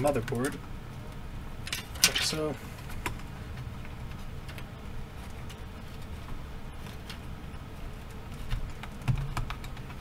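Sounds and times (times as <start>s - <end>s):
low steady hum: 0.0s - 10.0s
fingers clicking and tapping: 8.5s - 10.0s.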